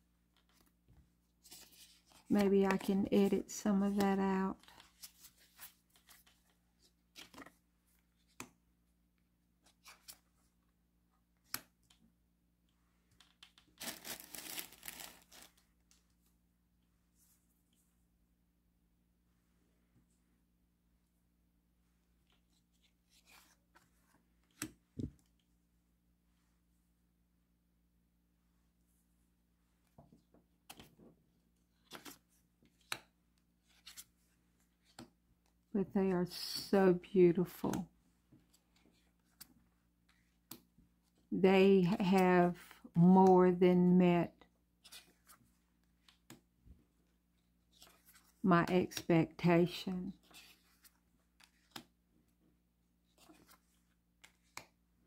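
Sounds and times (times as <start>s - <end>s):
cards sliding and rubbing: 1.4s - 2.8s, 22.3s - 24.6s, 50.2s - 52.0s, 53.1s - 54.8s.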